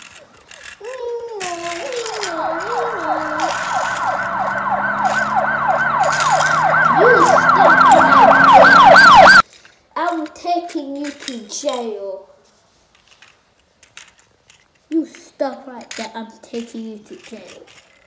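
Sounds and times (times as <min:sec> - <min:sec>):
person speaking: 0:00.8 - 0:04.2, 0:06.8 - 0:08.2
police siren yelping: 0:01.6 - 0:09.4.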